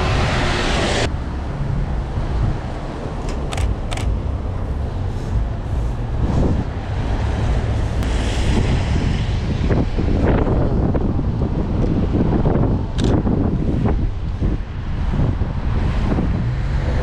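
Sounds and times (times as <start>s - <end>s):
passing car engines: 0.0s - 17.0s
steady low rumble: 0.0s - 17.0s
short clicks: 3.2s - 4.1s
tyre hiss on wet road: 4.8s - 9.1s.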